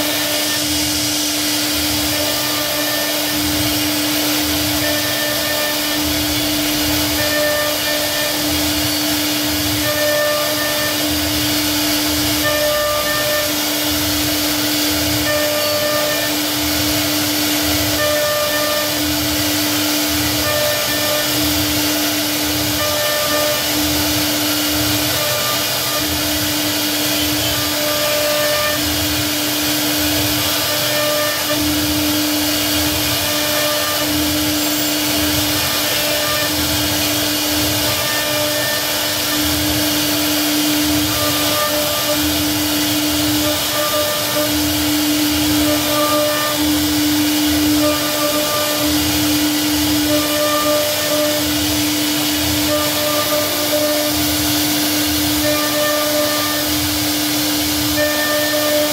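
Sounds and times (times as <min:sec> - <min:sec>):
cnc router spindle whine: 0:00.0 - 0:58.9
wood cutting noise: 0:00.0 - 0:58.9.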